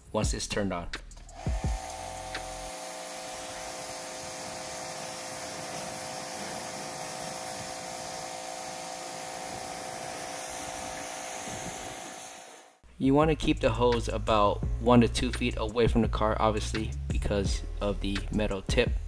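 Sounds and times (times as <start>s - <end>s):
pressure washer motor hum: 1.3s - 12.8s
high-pressure water jet hissing: 1.4s - 12.8s.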